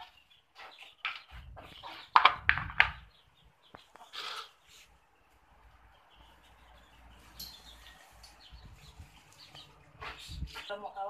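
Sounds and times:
plastic bowls clacking on tile: 1.0 - 3.1.

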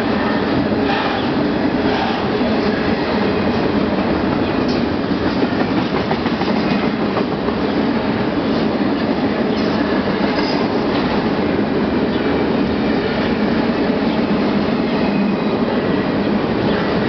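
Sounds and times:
freight train wheels rumbling: 0.0 - 17.0
train wheel clicks: 4.6 - 7.6.

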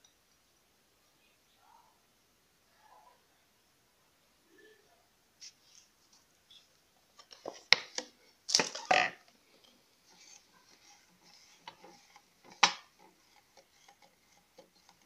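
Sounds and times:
utensil scraping clatter: 8.5 - 15.0.

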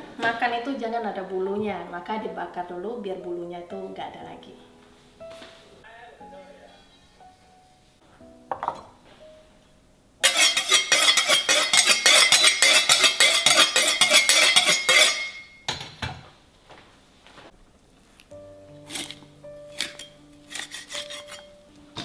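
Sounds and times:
cleavers scraping blade on blade: 10.2 - 15.4, 18.9 - 21.6.

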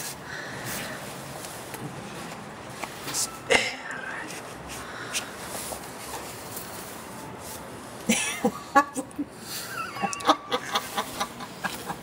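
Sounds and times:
people laughing: 8.1 - 12.0.

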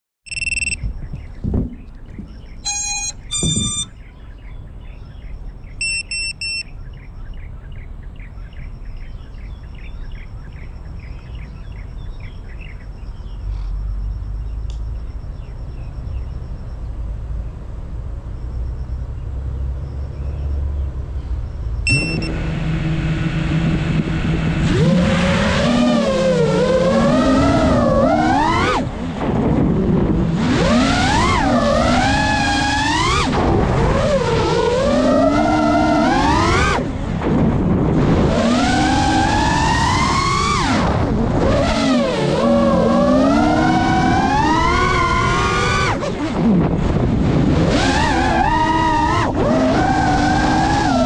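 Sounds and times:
short electronic beeps: 0.2 - 1.3, 2.6 - 4.0, 5.7 - 6.8, 13.8 - 16.9, 21.4 - 22.4
drone motors humming: 0.3 - 3.9, 13.4 - 51.0.

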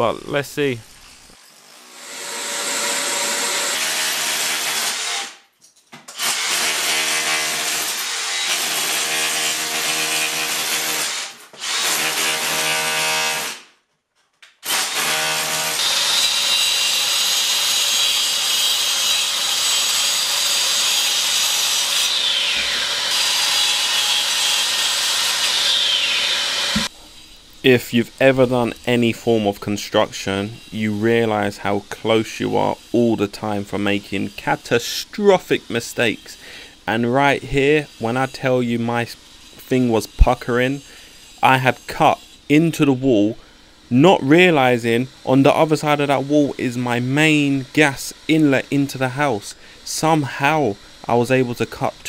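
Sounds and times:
power saw cutting: 0.9 - 5.4, 14.6 - 27.0.

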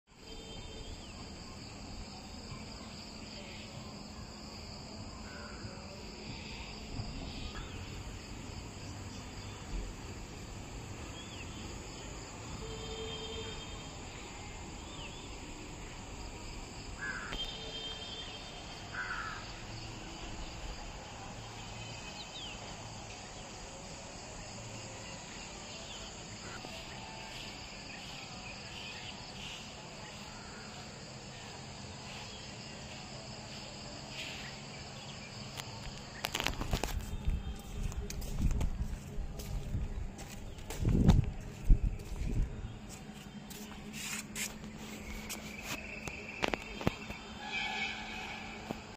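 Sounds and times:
high-pitched insect drone: 0.2 - 38.0, 43.6 - 48.9
crows cawing: 17.0 - 17.4, 18.9 - 19.5.

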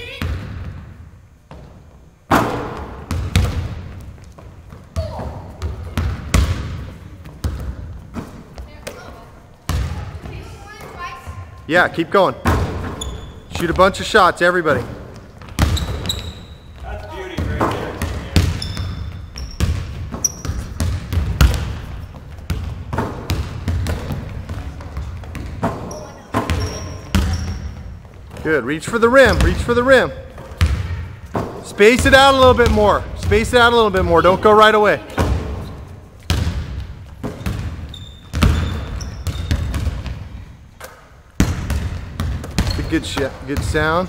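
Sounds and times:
basketballs bouncing on wood floor: 0.0 - 11.6, 12.4 - 44.0
shoe squeaks: 12.8 - 13.7, 15.6 - 17.0, 18.4 - 20.8, 25.7 - 28.3, 35.6 - 36.1, 37.2 - 39.7, 42.6 - 43.7.

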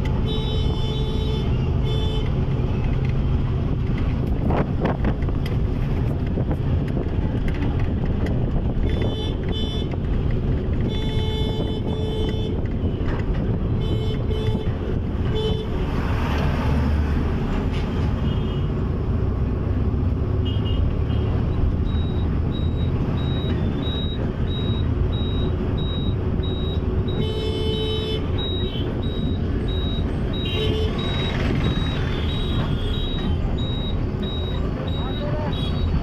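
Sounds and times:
engine and road rumble: 0.0 - 36.0
vehicle horns honking: 0.2 - 2.4, 8.8 - 10.0, 10.8 - 13.1, 13.7 - 15.8, 20.4 - 21.4, 26.0 - 36.0
short high beeps: 28.4 - 36.0.

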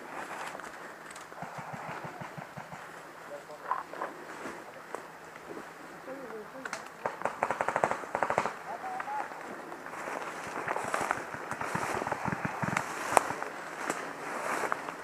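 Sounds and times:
paintball markers firing: 6.7 - 9.1.

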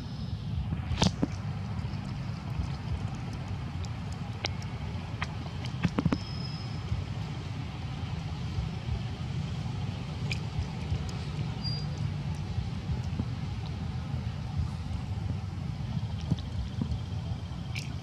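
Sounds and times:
low outdoor rumble: 0.0 - 18.0
faint high whistle: 6.1 - 6.8, 11.6 - 12.0.

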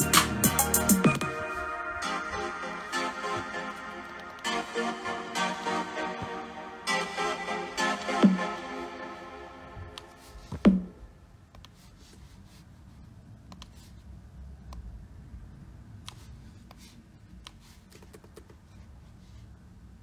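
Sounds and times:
computer mouse clicks: 13.5 - 13.8.

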